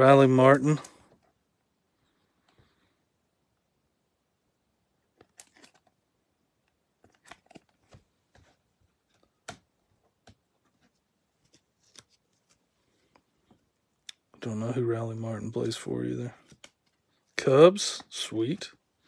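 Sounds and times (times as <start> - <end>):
light rustles of a card: 10.7 - 13.6.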